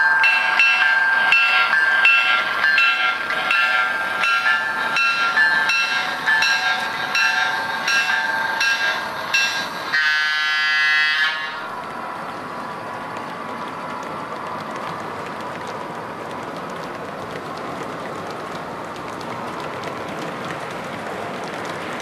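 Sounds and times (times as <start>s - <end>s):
bell ringing: 0.0s - 9.8s
model train rolling on track: 0.0s - 22.0s
train horn blast: 9.9s - 11.6s.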